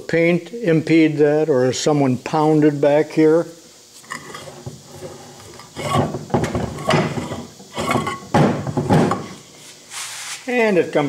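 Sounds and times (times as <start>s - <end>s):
vise jaw scraping and clunking: 4.0s - 9.4s.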